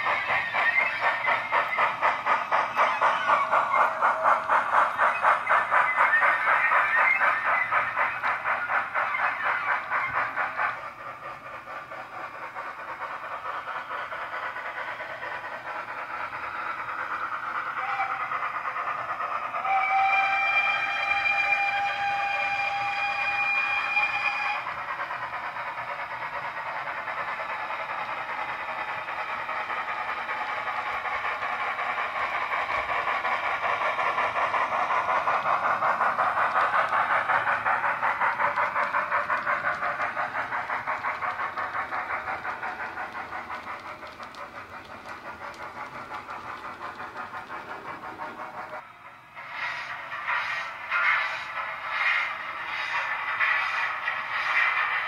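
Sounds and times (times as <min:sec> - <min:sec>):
steam locomotive exhaust chuffs: 0:00.0 - 0:55.0
steam whistle: 0:19.6 - 0:24.6.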